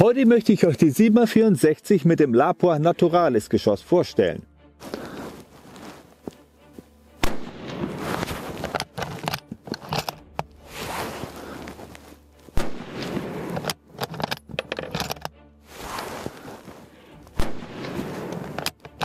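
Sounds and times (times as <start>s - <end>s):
rifle shots: 7.2s - 8.3s, 12.6s - 13.7s, 17.4s - 18.7s.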